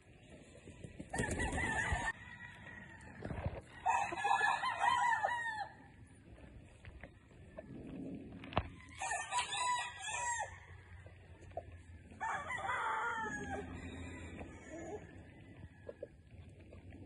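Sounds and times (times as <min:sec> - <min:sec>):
rooster crowing: 0:01.2 - 0:05.9, 0:08.8 - 0:11.0, 0:12.2 - 0:15.6.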